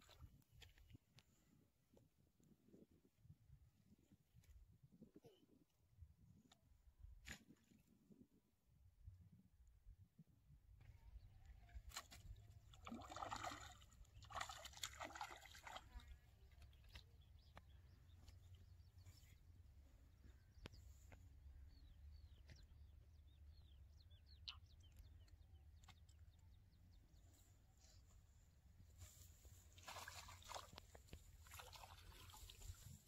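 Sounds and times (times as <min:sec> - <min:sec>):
fish splashing and thrashing: 0:11.8 - 0:16.1, 0:29.7 - 0:32.8.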